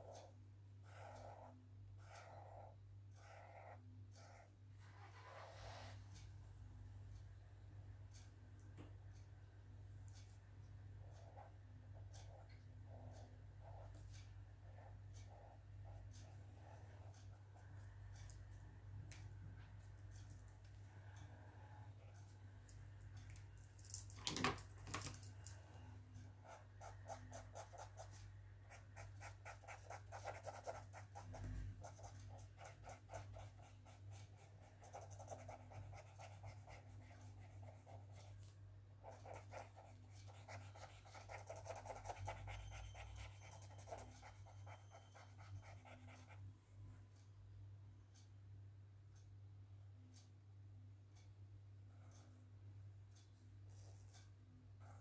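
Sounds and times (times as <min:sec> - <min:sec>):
marker pen scratching on paper: 0:00.0 - 0:06.0, 0:11.0 - 0:18.3, 0:26.3 - 0:46.4.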